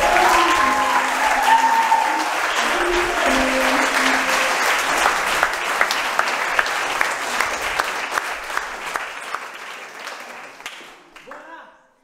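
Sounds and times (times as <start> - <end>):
dance music: 0.0 - 5.6
audience applauding: 0.0 - 11.5.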